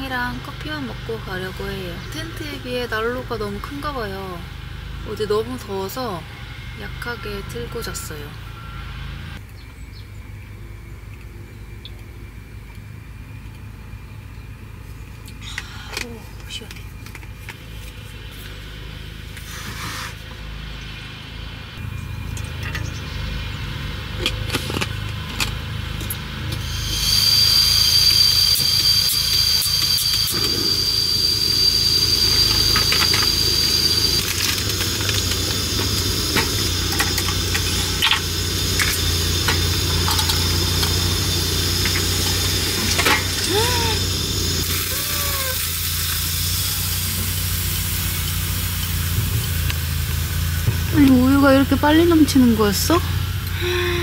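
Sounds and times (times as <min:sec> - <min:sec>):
gas stove burning with hiss: 0:26.4 - 0:53.6.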